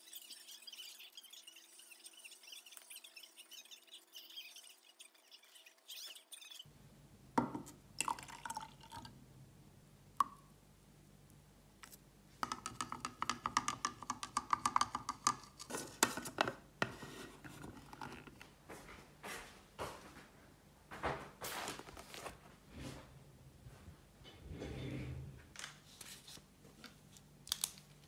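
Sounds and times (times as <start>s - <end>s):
liquid pouring: 7.4s - 9.2s.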